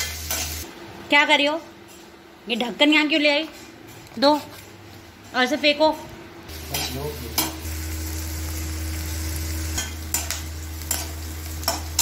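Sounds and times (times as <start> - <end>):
onions sizzling in oil: 0.0 - 0.8, 6.5 - 12.0.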